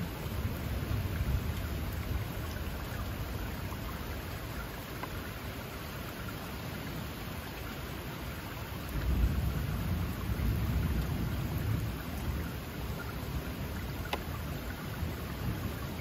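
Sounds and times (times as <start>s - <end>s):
rain falling through pine trees: 0.0s - 16.0s.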